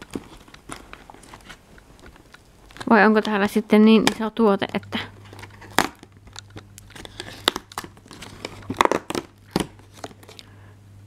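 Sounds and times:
cardboard tearing and crinkling: 0:00.0 - 0:04.3, 0:05.2 - 0:10.4
cardboard snapping: 0:05.2 - 0:10.4.

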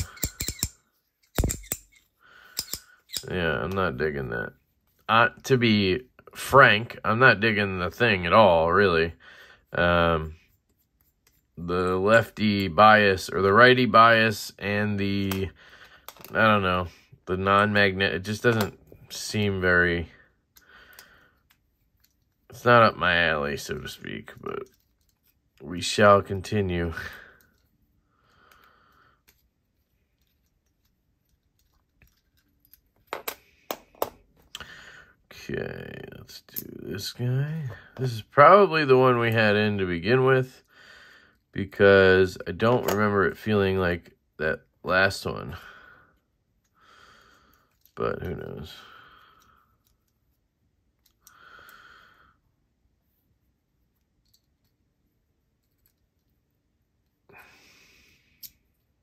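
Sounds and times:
fidget coin ratchet clicks: 0:00.0 - 0:00.7
small metal parts clicking: 0:00.0 - 0:03.3, 0:29.2 - 0:34.0.

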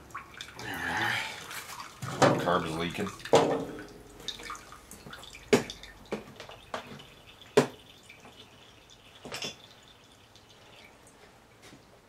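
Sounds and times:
gasoline dripping into glass cup: 0:02.4 - 0:11.0.

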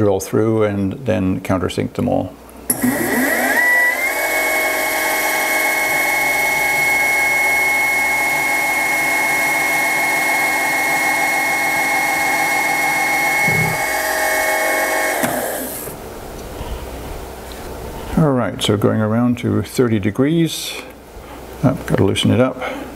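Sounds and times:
milling machine spindle whine: 0:02.7 - 0:16.0.

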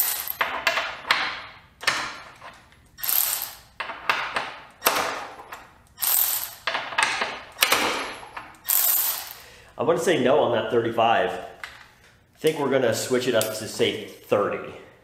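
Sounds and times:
cordless ratchet straining: 0:06.0 - 0:06.7, 0:08.6 - 0:09.4.

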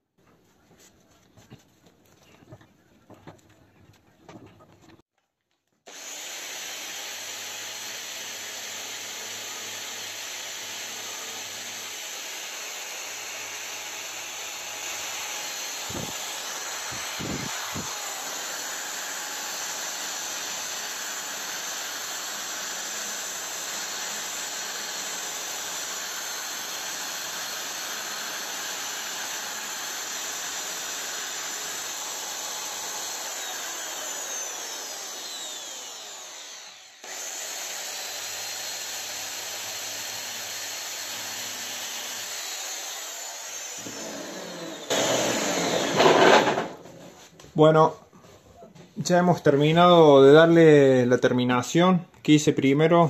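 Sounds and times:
electric drill sanding plastic: 0:05.9 - 0:46.8.

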